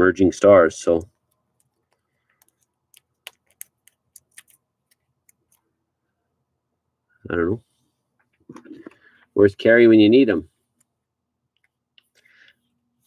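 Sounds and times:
trading card ticking and clicking: 0:01.2 - 0:05.6.

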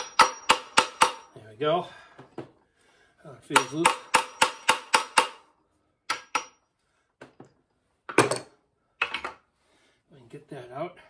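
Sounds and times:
hammer striking metal: 0:00.0 - 0:01.4, 0:03.5 - 0:05.5, 0:06.1 - 0:06.6.

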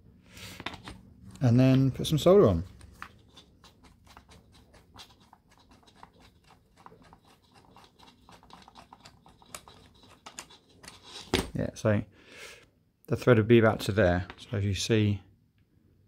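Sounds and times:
light scratching: 0:00.8 - 0:11.4.

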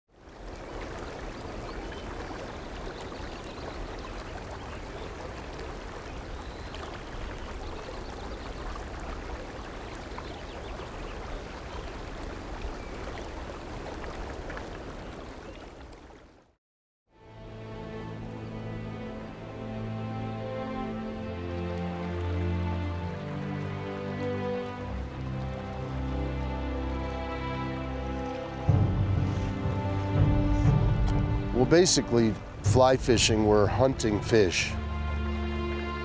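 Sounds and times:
fast-flowing river water: 0:00.2 - 0:15.6, 0:17.7 - 0:30.2.

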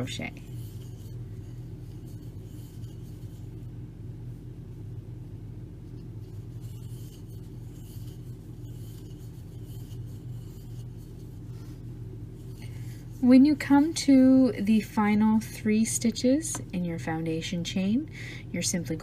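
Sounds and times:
yarn rustling on crochet hook: 0:00.0 - 0:05.1, 0:05.8 - 0:15.8
steady low hum: 0:00.0 - 0:19.0.

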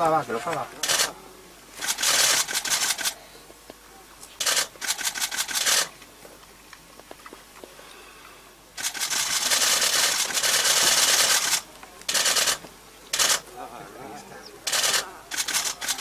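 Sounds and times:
camera shutters firing in bursts: 0:00.5 - 0:01.2, 0:01.8 - 0:03.2, 0:04.4 - 0:05.9, 0:08.8 - 0:13.5, 0:14.7 - 0:16.0.

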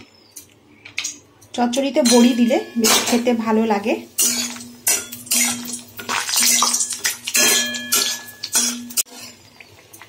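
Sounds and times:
food sizzling in hot oil: 0:04.0 - 0:10.0
spatula scraping metal pan: 0:07.9 - 0:09.4.

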